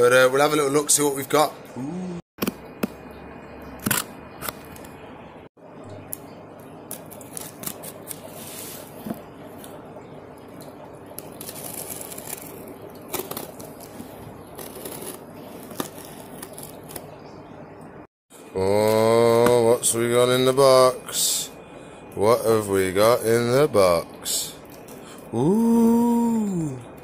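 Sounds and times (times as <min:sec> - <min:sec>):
steady background hum: 0:00.0 - 0:27.0
knife slitting packing tape: 0:14.6 - 0:17.0.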